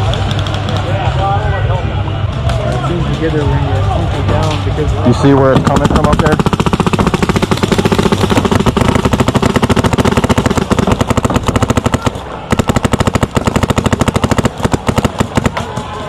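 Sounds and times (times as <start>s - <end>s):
paintball marker rapid firing: 5.1s - 16.0s.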